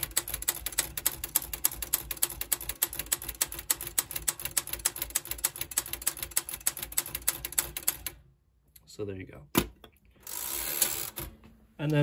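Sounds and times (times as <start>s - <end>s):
manual typewriter typing: 0.0s - 8.2s, 10.3s - 11.4s.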